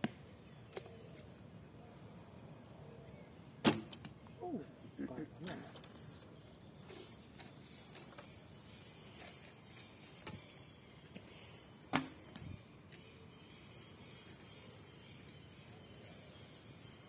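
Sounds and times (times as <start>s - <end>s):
light clicks of bows handled: 5.4s - 8.4s.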